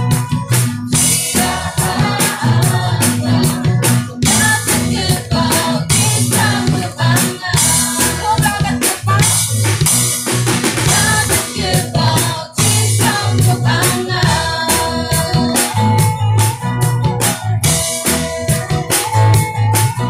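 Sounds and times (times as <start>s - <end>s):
acoustic guitar: 0.0s - 20.0s
drum kit beat: 0.0s - 20.0s
group of voices singing: 0.9s - 10.0s, 10.7s - 16.1s.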